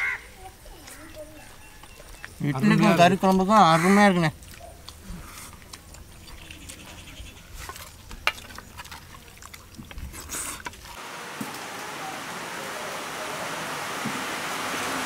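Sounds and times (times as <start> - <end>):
chewing: 4.3 - 11.0
steady hiss: 11.0 - 15.0.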